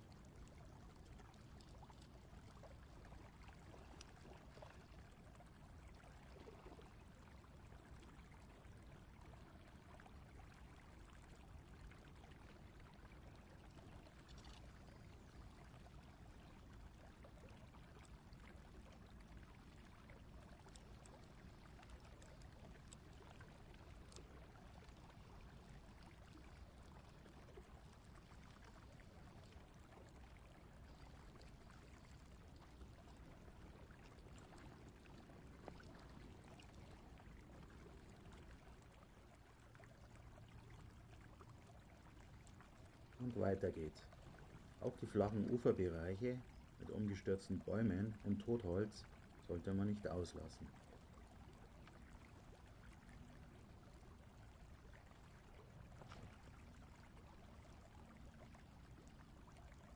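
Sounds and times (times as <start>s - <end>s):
faint flowing water: 0.0s - 59.9s
tiny ticks: 14.2s - 14.8s, 22.2s - 23.2s.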